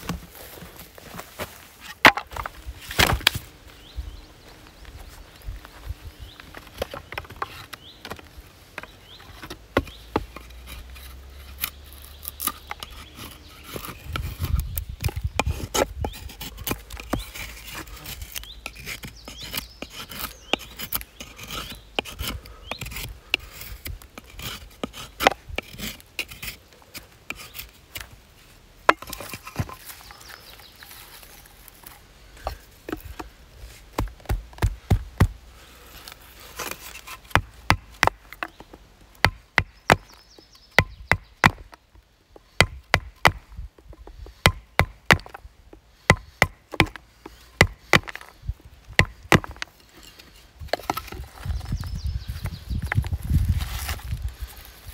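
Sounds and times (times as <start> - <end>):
knife scraping wood: 9.1 - 40.2, 49.0 - 51.8.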